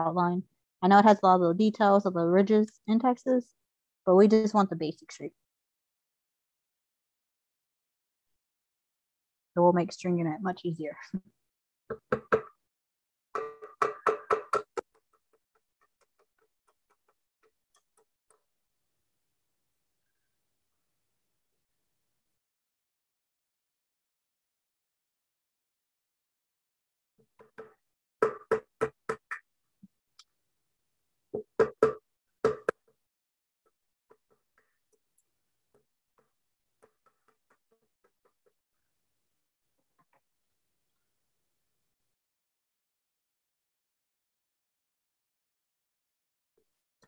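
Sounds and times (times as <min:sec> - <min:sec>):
hammer striking nails into wood: 0:13.4 - 0:14.8, 0:31.4 - 0:32.8.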